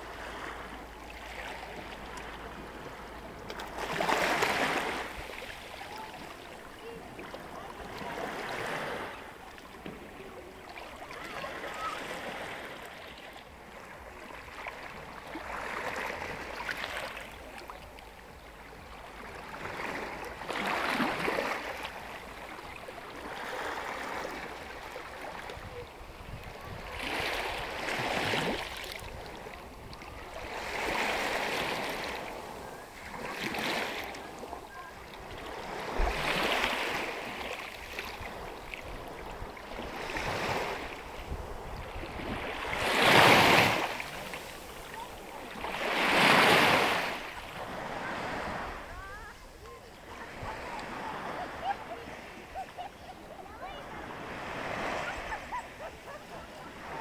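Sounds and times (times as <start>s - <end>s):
small waves lapping on rocks: 0.0s - 57.0s.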